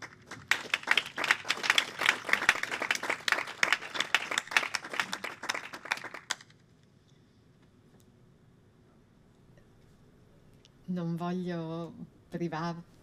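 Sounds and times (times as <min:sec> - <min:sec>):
audience applause: 0:00.0 - 0:06.5.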